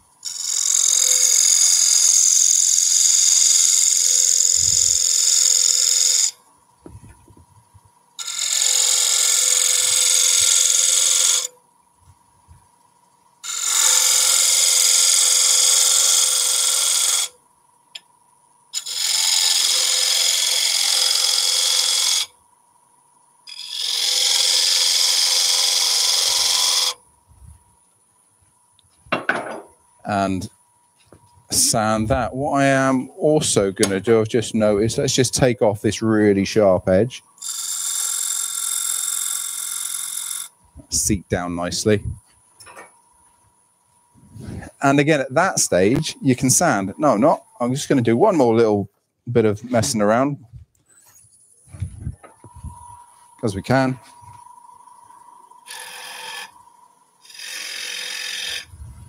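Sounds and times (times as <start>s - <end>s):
gouge cutting spinning wood: 0.2s - 7.4s, 8.2s - 11.6s, 13.4s - 17.3s, 18.8s - 22.3s, 23.5s - 27.0s, 37.4s - 41.8s, 52.1s - 59.0s.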